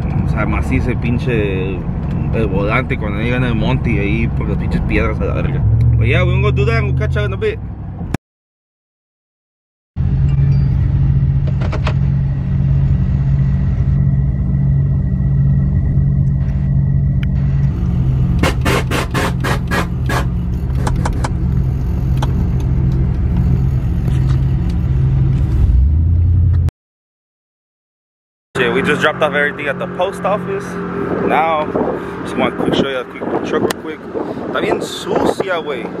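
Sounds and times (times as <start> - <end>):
pickup engine droning: 0.0 - 8.1, 10.0 - 26.7, 28.6 - 36.0
sharp exhaust cracks: 13.0 - 25.6.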